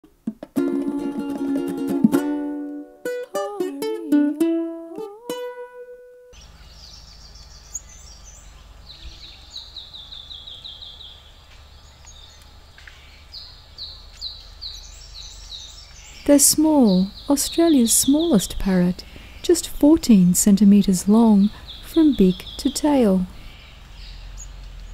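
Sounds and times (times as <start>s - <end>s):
plucked-string tune: 0.0s - 6.4s
high bird chirps: 6.4s - 19.8s, 20.4s - 24.9s.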